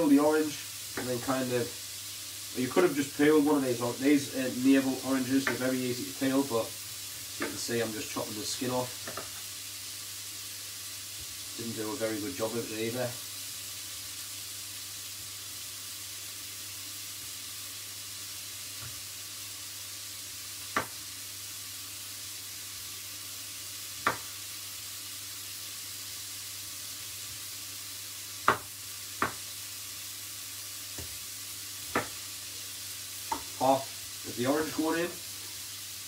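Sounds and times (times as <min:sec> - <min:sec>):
vegetables sizzling in a frying pan: 0:00.0 - 0:36.0
knife knocking on chopping board: 0:28.5 - 0:29.4, 0:31.9 - 0:32.2.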